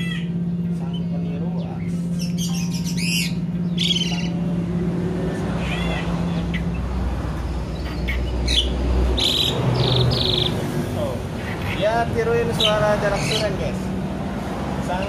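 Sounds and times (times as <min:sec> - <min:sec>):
bird singing whistled notes: 0:00.0 - 0:04.4
steady low hum: 0:00.0 - 0:14.8.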